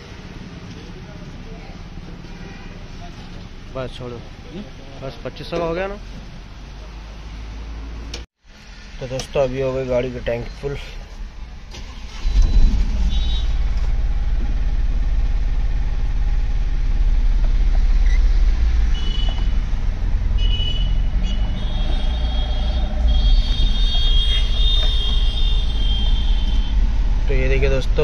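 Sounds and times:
diesel engine rumble: 8.0 - 28.0.

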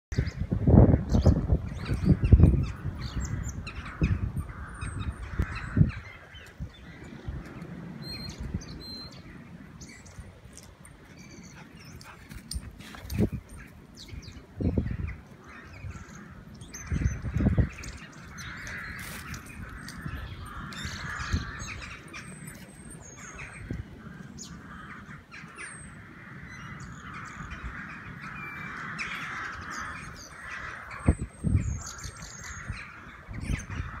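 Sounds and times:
birds chirping and singing: 0.1 - 34.0.

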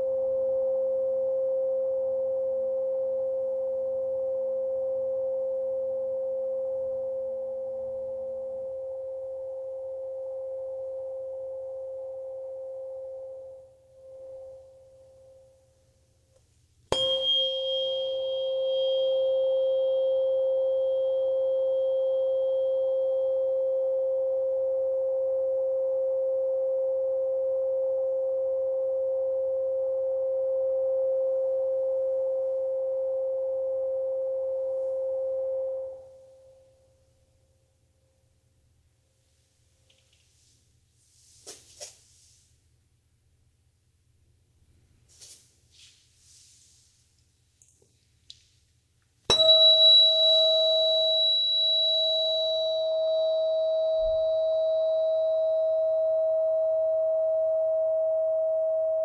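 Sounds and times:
tuning fork ringing a pure tone: 0.0 - 16.3, 16.9 - 38.6, 49.3 - 59.0
tuning fork struck with metallic click: 16.9 - 24.4, 49.3 - 59.0.

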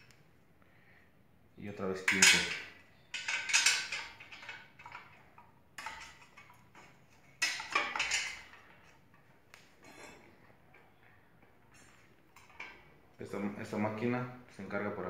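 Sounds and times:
steel rod clinking and scraping: 2.1 - 5.2, 5.8 - 9.2, 9.8 - 10.9
metallic clatters: 2.1 - 11.0.

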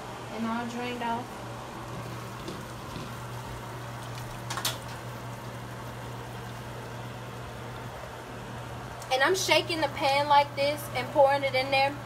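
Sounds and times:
steady low hum: 0.0 - 12.0
grease pouring into a colander: 1.7 - 8.8.

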